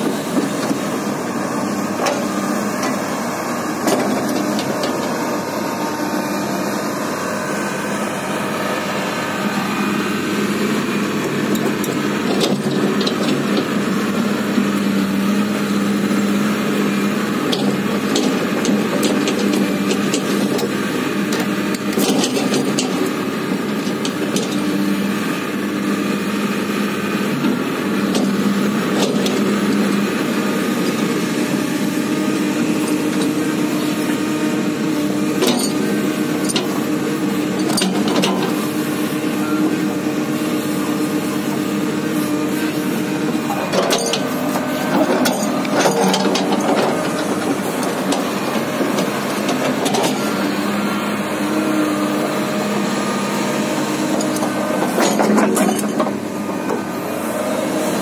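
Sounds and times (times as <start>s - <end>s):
excavator diesel engine running: 0.0s - 58.0s
metal clanks and knocks: 43.5s - 50.2s, 54.2s - 56.2s.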